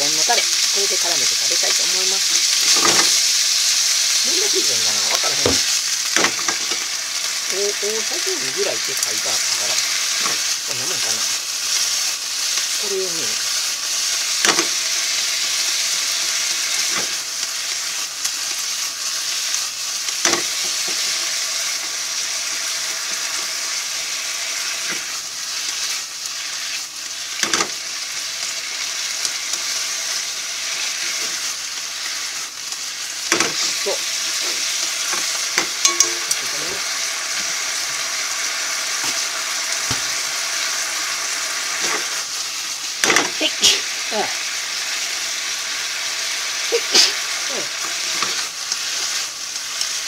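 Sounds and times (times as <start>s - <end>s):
pork sizzling in wok: 0.0s - 50.0s
chopsticks tapping pan: 35.1s - 36.6s.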